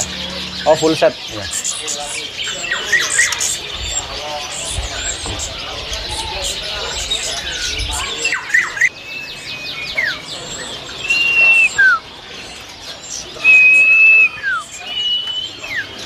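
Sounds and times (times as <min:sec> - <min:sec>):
songbirds singing: 0:00.0 - 0:16.0.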